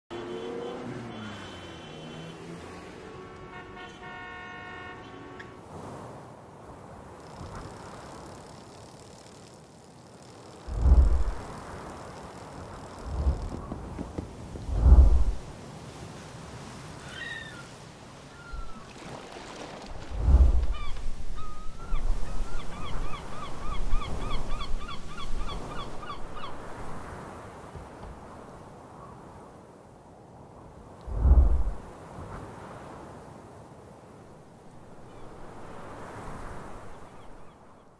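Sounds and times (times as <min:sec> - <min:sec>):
car horn blast: 0:00.1 - 0:05.6
city traffic noise: 0:00.1 - 0:05.8.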